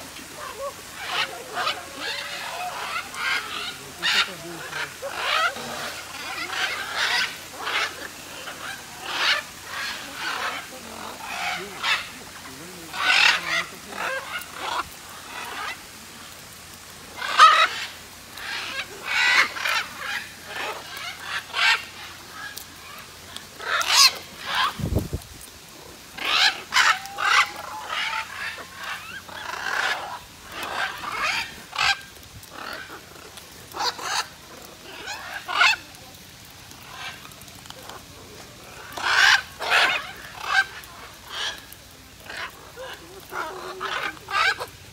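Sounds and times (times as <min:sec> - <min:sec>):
macaws squawking: 0:00.0 - 0:15.9, 0:16.8 - 0:24.9, 0:26.0 - 0:35.9, 0:36.7 - 0:44.9.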